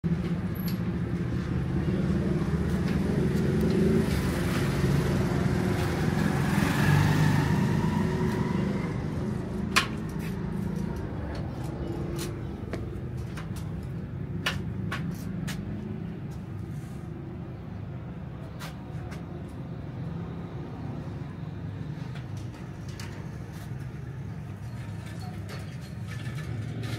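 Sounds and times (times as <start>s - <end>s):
vehicle passing by: 1.3s - 17.5s.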